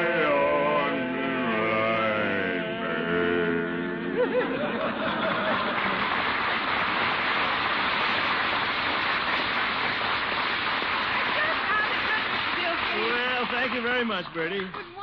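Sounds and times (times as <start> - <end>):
group singing: 0.0 - 4.8
audience applauding: 4.8 - 15.0.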